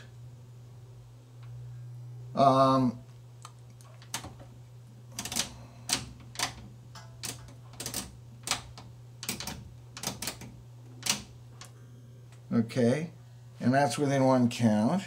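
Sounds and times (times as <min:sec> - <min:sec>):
rotary switch clicks: 0:05.2 - 0:11.7.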